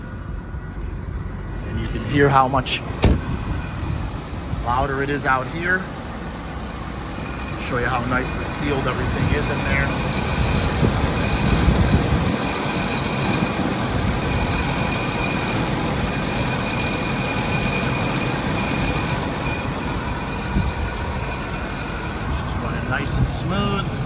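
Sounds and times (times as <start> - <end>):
car engine idling: 0.0 - 24.0
faint high whine: 7.2 - 24.0.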